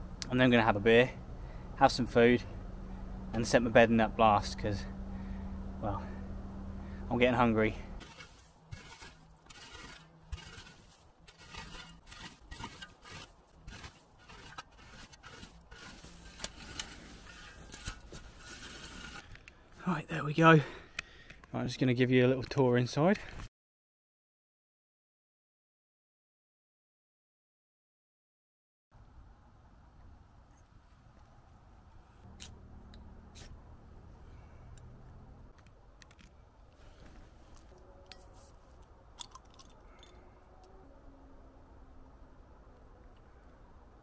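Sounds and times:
shovel scraping leaf litter: 8.0 - 19.3, 33.3 - 33.6.

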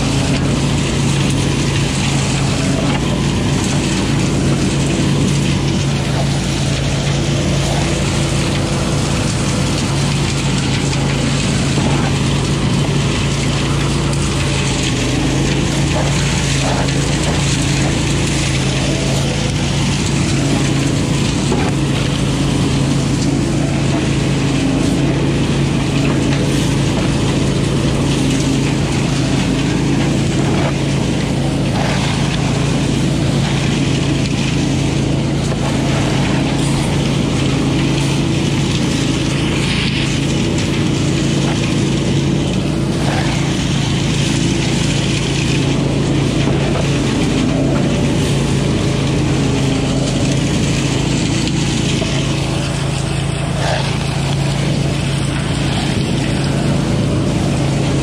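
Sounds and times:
leaf vacuum engine drone: 0.0 - 58.0.

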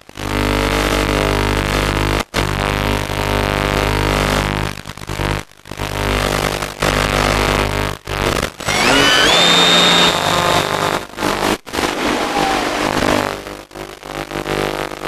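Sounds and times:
hissy onboard audio noise: 0.0 - 8.6, 10.6 - 15.0
electric motor whine: 8.6 - 13.6.

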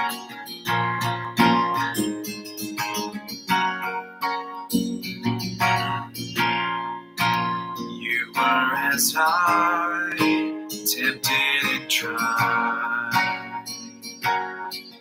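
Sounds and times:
acoustic guitar strumming: 0.0 - 15.0
man singing: 8.0 - 13.7.

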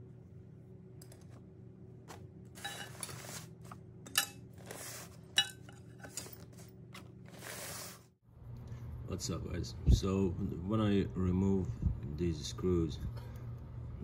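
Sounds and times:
steady low hum: 0.0 - 14.0
paper rustling: 2.1 - 3.8, 6.0 - 8.1.

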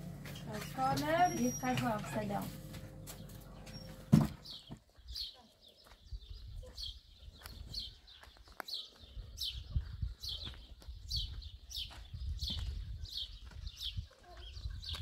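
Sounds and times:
footsteps on dirt road: 0.0 - 15.0.

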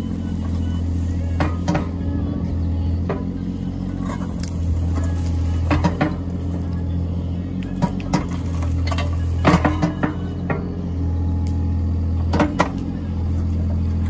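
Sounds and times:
diesel engine running: 0.0 - 14.0
metallic clanks: 1.3 - 2.1, 4.0 - 6.4, 7.7 - 10.7.

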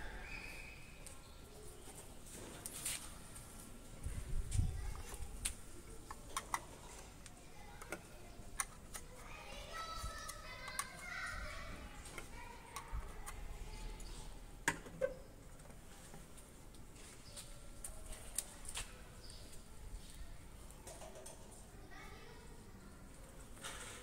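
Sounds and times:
hard plastic parts clicking: 4.9 - 9.3, 10.2 - 11.1.

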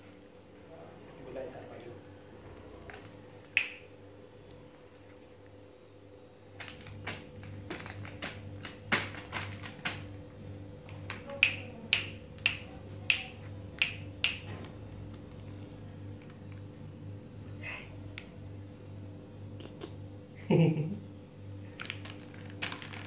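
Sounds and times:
hand slapping plastic packets: 6.6 - 10.2, 10.8 - 15.6, 21.7 - 23.0.

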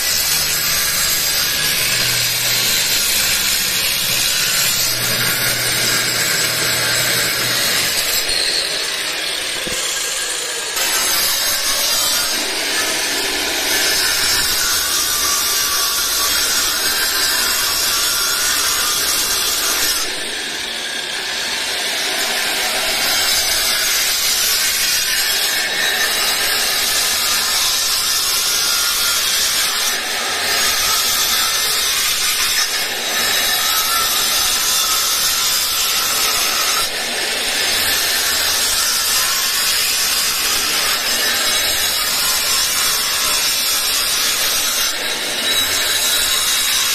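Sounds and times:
angle grinder cutting wall: 0.0 - 46.9.

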